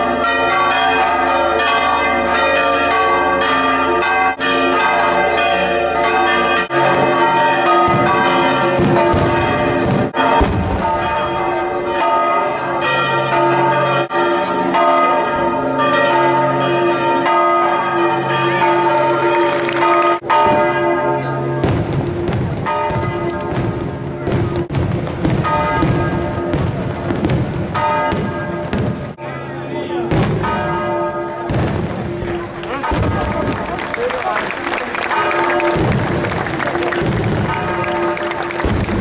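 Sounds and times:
church bells ringing: 0:00.0 - 0:39.0.

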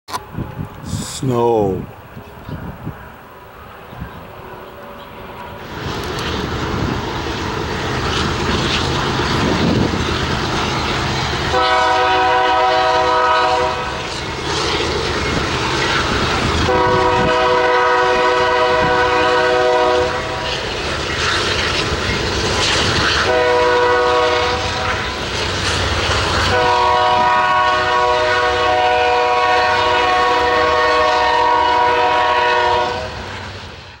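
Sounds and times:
train wheels on rails: 0:02.0 - 0:34.0
locomotive air horn blasts: 0:11.5 - 0:14.0, 0:16.6 - 0:20.5, 0:23.2 - 0:25.0, 0:26.4 - 0:33.3.

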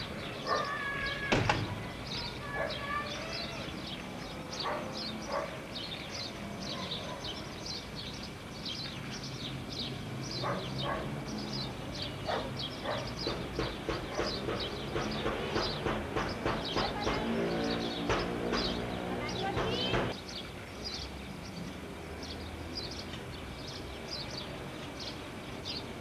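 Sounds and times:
dog barking: 0:00.4 - 0:00.8, 0:02.5 - 0:02.9, 0:04.6 - 0:05.6, 0:06.7 - 0:07.4, 0:10.4 - 0:11.2, 0:12.3 - 0:13.2, 0:14.1 - 0:14.4.

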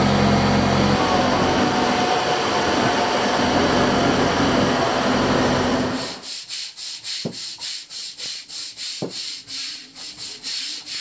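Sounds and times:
machinery drone: 0:00.0 - 0:06.2
hand scrubbing: 0:06.2 - 0:11.0.

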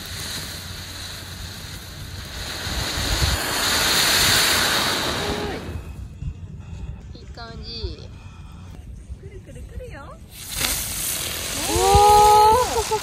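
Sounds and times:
firework fountain hissing: 0:00.0 - 0:06.2, 0:10.2 - 0:13.0
wind buffeting microphone: 0:00.0 - 0:13.0.

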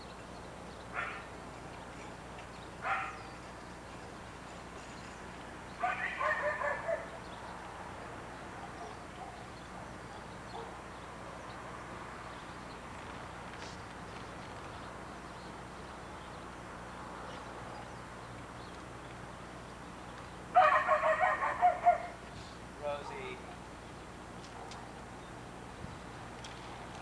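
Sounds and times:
dog barking: 0:00.9 - 0:01.3, 0:02.8 - 0:03.3, 0:05.8 - 0:07.2, 0:08.6 - 0:10.8, 0:20.6 - 0:22.2, 0:23.0 - 0:23.6.

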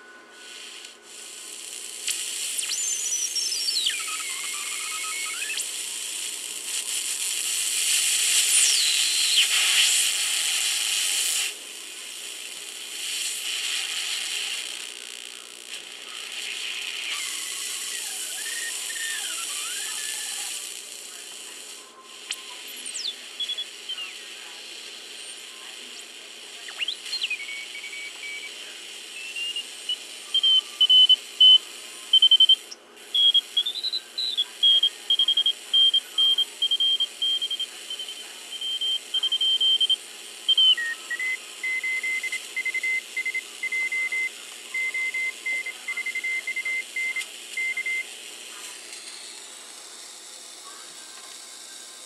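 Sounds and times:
faint radio hiss: 0:00.0 - 0:52.0
morse code beep tone: 0:33.2 - 0:48.0.

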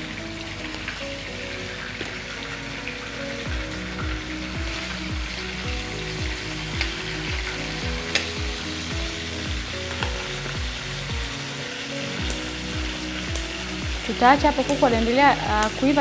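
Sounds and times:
background music with beat: 0:00.0 - 0:16.0
chicken sizzling in frying pan: 0:00.0 - 0:16.0.

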